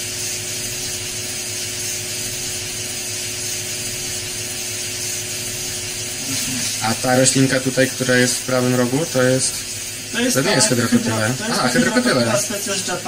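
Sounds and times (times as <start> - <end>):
faint constant hum: 5.6 - 13.0.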